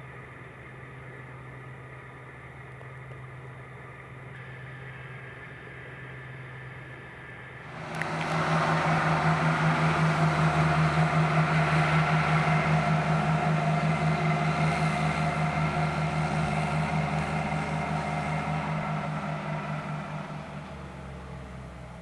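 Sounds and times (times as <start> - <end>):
tractor diesel engine running: 7.5 - 22.0.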